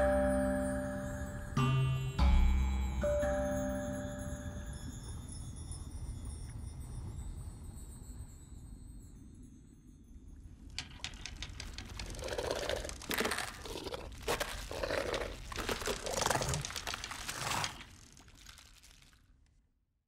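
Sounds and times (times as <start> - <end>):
crunching crackling with clicks: 10.7 - 19.4.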